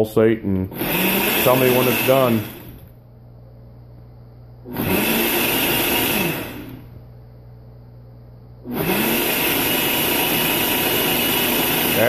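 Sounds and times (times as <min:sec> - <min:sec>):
blender motor whining: 0:00.7 - 0:03.0, 0:04.6 - 0:07.0, 0:08.6 - 0:12.0.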